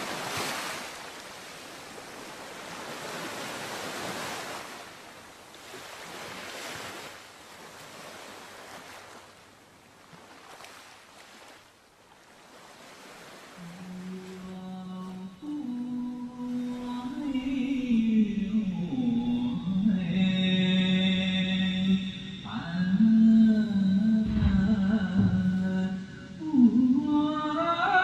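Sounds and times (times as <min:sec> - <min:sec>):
rushing surf-like noise: 0:24.2 - 0:26.4.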